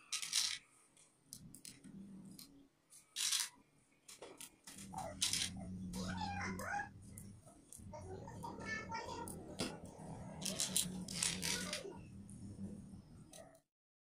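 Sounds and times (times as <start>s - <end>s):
mixer parts clicking and scraping: 0.0s - 0.7s, 1.3s - 6.1s, 9.2s - 12.0s
steady low hum: 1.3s - 2.9s, 4.6s - 13.6s.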